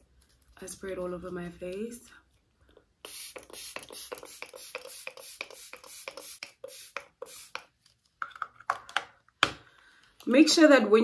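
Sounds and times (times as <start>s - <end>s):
spray bottle hissing sprays: 3.0s - 7.7s.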